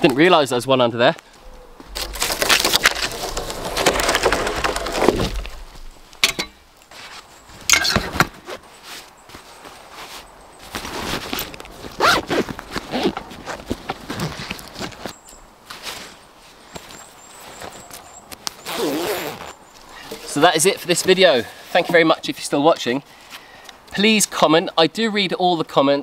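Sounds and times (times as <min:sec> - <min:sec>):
rustles and clicks: 0:01.4 - 0:22.1.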